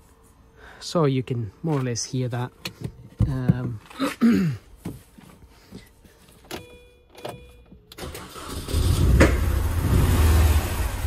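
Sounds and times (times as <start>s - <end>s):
car engine misfiring: 8.0s - 11.0s
engine backfire pop: 9.0s - 9.6s.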